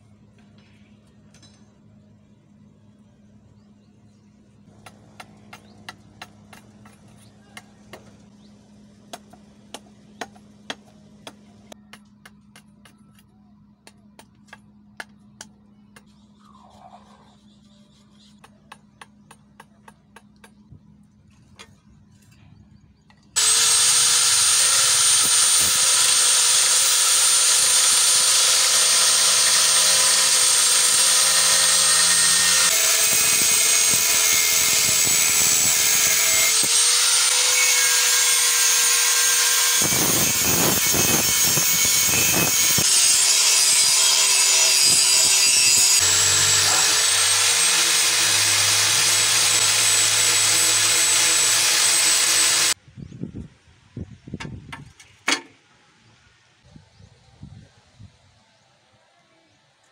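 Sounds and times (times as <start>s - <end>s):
angle grinder grinding steel: 23.4s - 52.8s.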